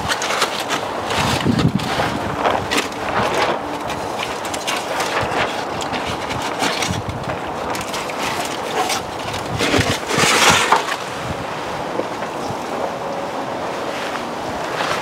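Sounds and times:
aluminum foil crinkling: 0:00.0 - 0:11.0
steady rushing noise: 0:00.0 - 0:15.0.

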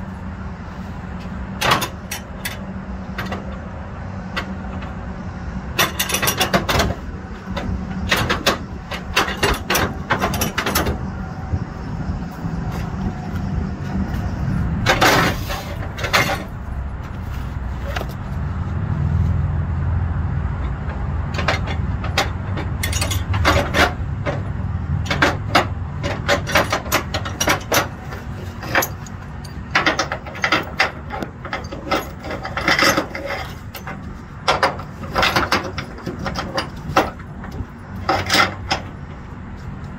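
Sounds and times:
low engine rumble: 0:00.0 - 0:39.9
strap hardware clicking and clanking: 0:01.2 - 0:05.0, 0:05.7 - 0:11.3, 0:20.6 - 0:39.9.

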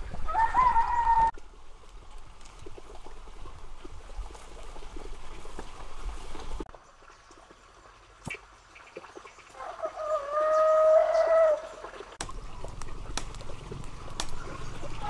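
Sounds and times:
rooster crowing: 0:00.3 - 0:01.3.

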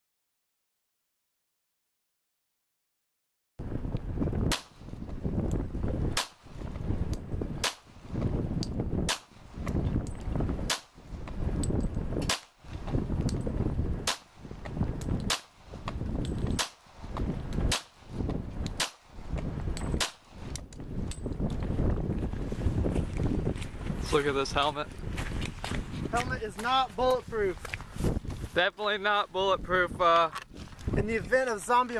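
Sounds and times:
wind noise on microphone: 0:03.6 - 0:31.9
handgun shots: 0:04.5 - 0:04.8, 0:12.2 - 0:12.5, 0:14.1 - 0:14.3, 0:15.2 - 0:15.5.

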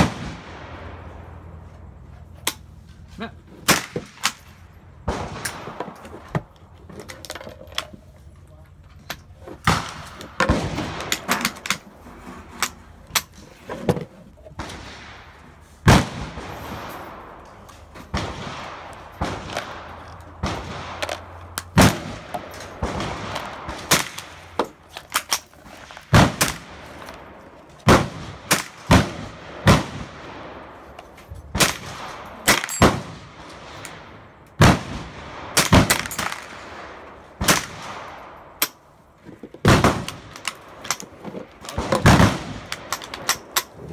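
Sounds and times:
gunshots echoing: 0:00.0 - 0:01.5, 0:03.6 - 0:06.0, 0:09.6 - 0:11.9, 0:14.6 - 0:30.9, 0:31.5 - 0:38.8, 0:39.6 - 0:43.9.

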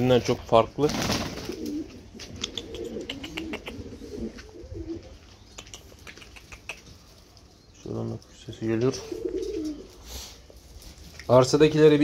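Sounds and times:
pigeons cooing: 0:01.0 - 0:07.4, 0:08.2 - 0:10.8.

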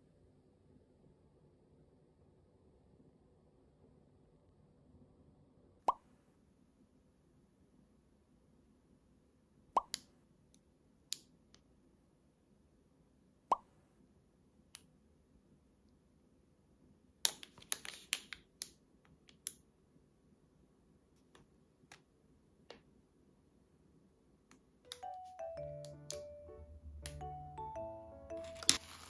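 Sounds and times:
plastic crinkles and clicks: 0:17.3 - 0:19.4, 0:28.4 - 0:29.0.

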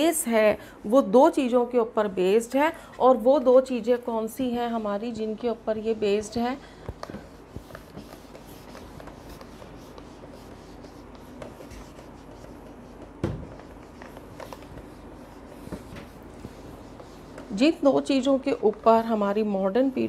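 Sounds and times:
pen scratching while writing: 0:07.0 - 0:18.2.

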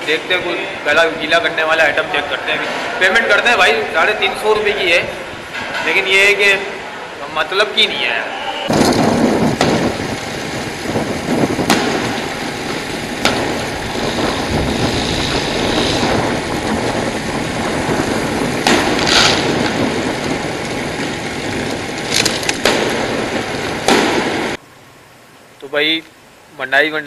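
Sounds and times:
sharp knocks: 0:08.7 - 0:10.2, 0:11.6 - 0:15.1, 0:18.6 - 0:19.8, 0:22.1 - 0:24.6
wind rushing over microphone: 0:08.7 - 0:24.6
vehicle engine and road noise: 0:08.7 - 0:25.6.

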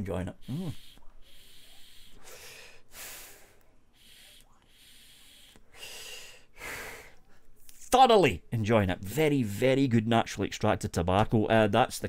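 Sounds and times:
breathy vapour exhaling hisses: 0:00.4 - 0:07.2.

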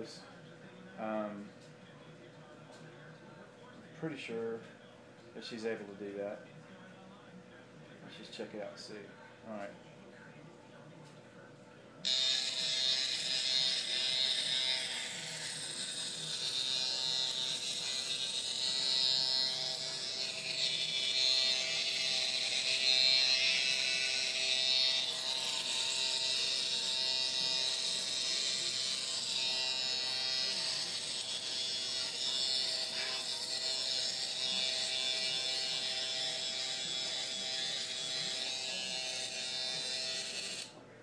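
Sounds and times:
electric razor buzz: 0:12.0 - 0:40.8.

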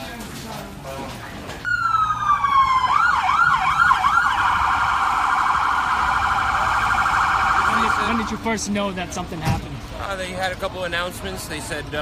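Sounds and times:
electronic siren wailing: 0:01.7 - 0:08.4.

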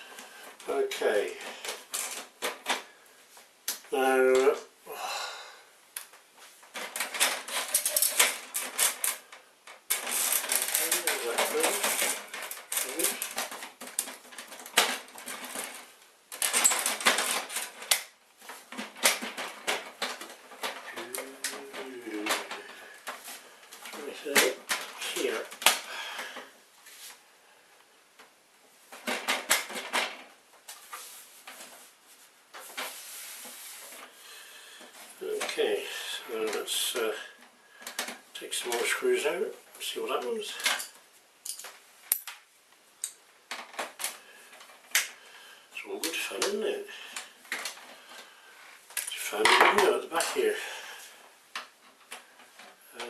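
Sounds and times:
clatter and scraping: 0:06.7 - 0:25.6.

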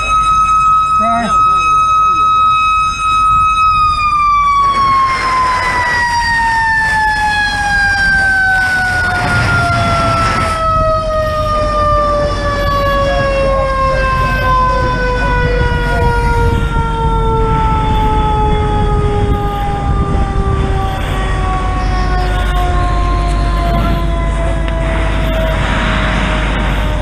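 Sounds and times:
mechanical siren winding down: 0:00.0 - 0:27.0
low rumble: 0:09.0 - 0:27.0.

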